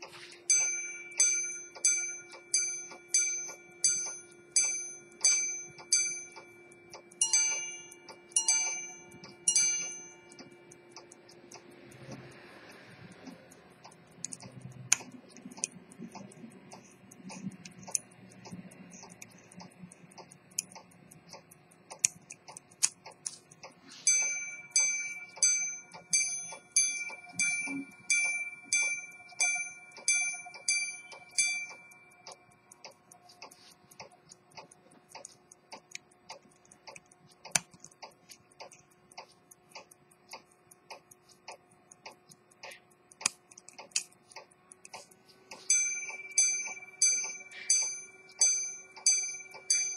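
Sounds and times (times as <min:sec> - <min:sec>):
pocket watch ticking: 0:00.0 - 0:49.9
watch gong chimes: 0:00.5 - 0:10.3, 0:45.7 - 0:49.9
handling clicks: 0:30.0 - 0:45.8.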